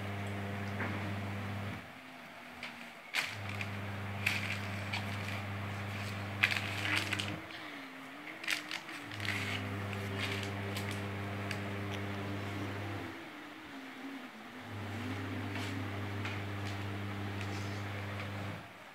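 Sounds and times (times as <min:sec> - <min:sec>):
steady low hum: 0:00.0 - 0:18.9
packaging crinkling: 0:02.6 - 0:07.7, 0:08.3 - 0:12.1.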